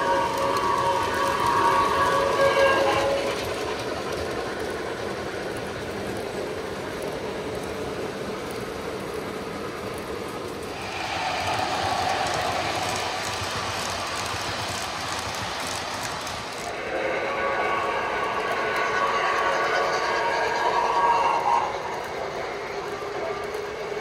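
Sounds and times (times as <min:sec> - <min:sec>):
model steam locomotive whistle: 0:00.0 - 0:04.4, 0:16.6 - 0:24.0
model diesel train passing: 0:00.0 - 0:24.0
model train cars rolling on track: 0:00.0 - 0:24.0.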